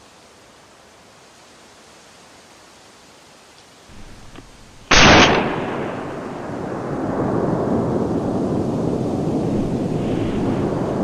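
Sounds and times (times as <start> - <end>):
steady low rumbling: 3.9 - 11.0
gunshot with rolling echo: 4.0 - 8.3.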